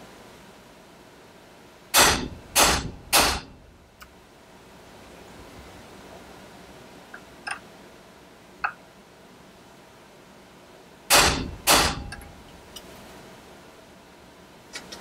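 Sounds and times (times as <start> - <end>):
hammer striking metal punch: 2.0 - 3.6, 11.1 - 12.3.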